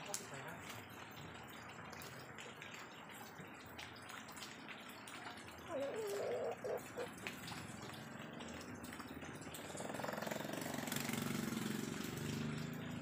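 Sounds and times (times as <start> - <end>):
small engine running: 9.6 - 13.0.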